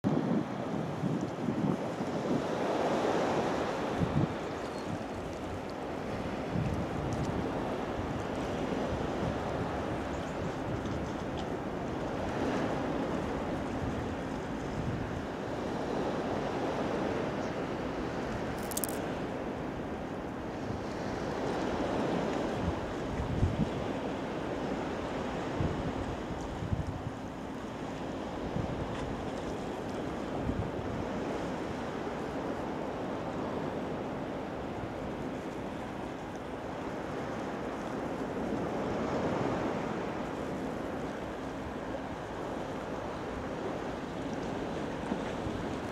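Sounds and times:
wind buffeting microphone: 0.0 - 15.3, 21.8 - 24.1
sea waves: 0.0 - 45.9
wind: 0.0 - 45.9.

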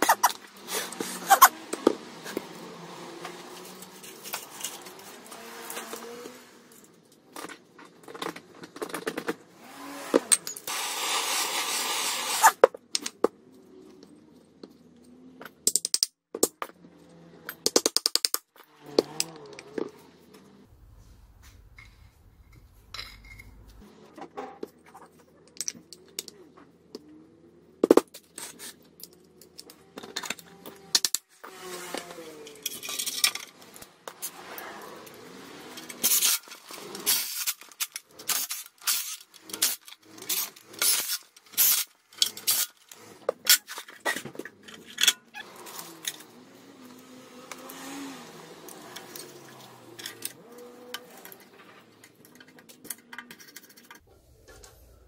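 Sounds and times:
metal parts and tools clinking: 0.0 - 2.5, 3.2 - 9.4, 10.0 - 10.7, 21.4 - 23.8, 31.9 - 54.0.

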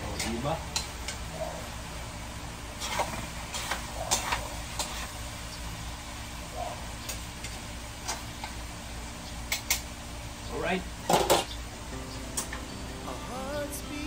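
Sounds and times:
metal spatula scraping wok: 2.8 - 5.2.

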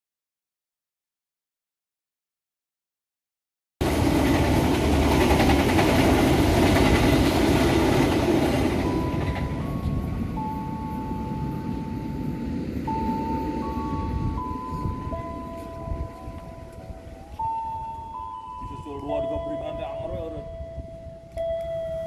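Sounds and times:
train coaches passing on track: 3.8 - 22.0
held tones in a slow tune: 8.7 - 22.0.

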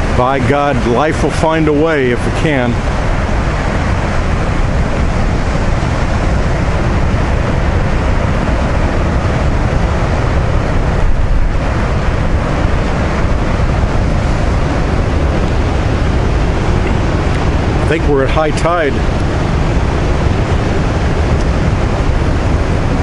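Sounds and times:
surf breaking over rocks: 0.0 - 23.0
wind buffeting microphone: 0.0 - 23.0.

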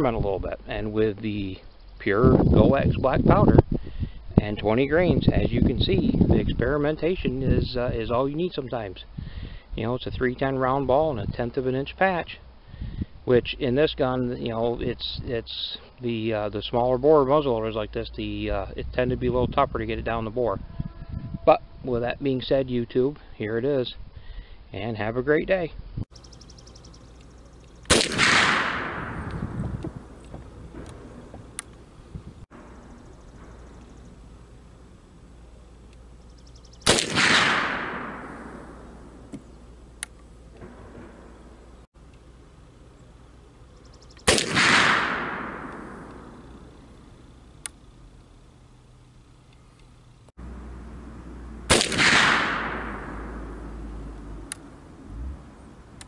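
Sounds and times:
rifle shot with echo: 27.8 - 31.7, 36.8 - 39.3, 40.6 - 41.6, 44.2 - 46.8, 51.7 - 53.9.

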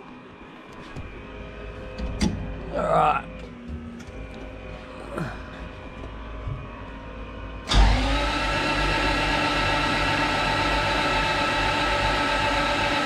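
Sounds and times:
starter motor cranking engine: 7.7 - 13.0.

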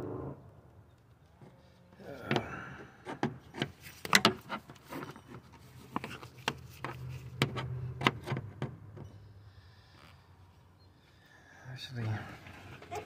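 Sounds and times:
low steady hum: 0.0 - 3.5.

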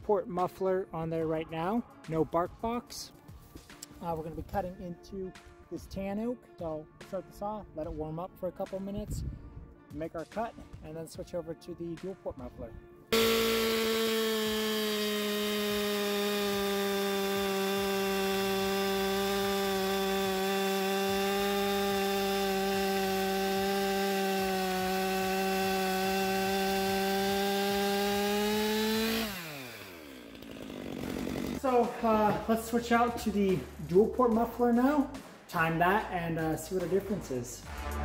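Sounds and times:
chainsaw cutting log: 13.1 - 33.4.

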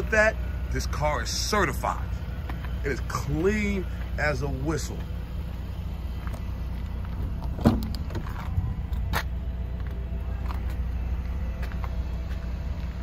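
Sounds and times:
steady low rumble: 0.0 - 13.0
car door thud: 7.6 - 8.3.

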